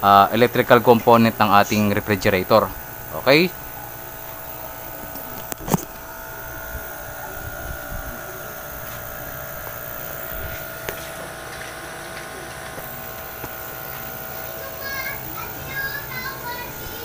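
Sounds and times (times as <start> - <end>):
refrigerator compressor humming: 0.0 - 17.0.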